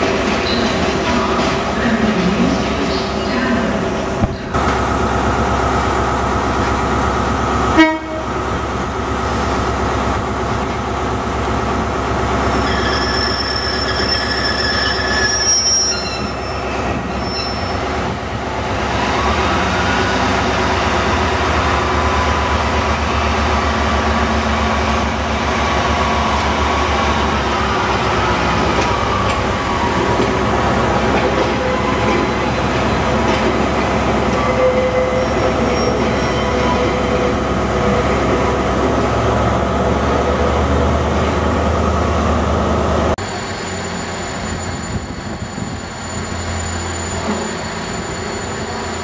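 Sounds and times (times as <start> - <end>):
diesel railbus engine droning: 0.0 - 49.0
high wheel squeal: 12.5 - 17.9, 34.3 - 38.0, 43.3 - 49.0.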